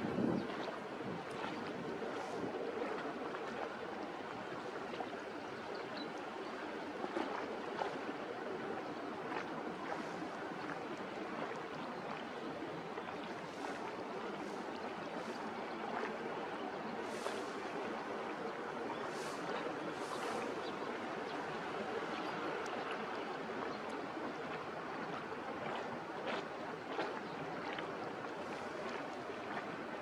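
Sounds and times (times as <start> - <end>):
small sharp splashes: 0.0 - 30.0
water lapping at shore: 0.0 - 30.0.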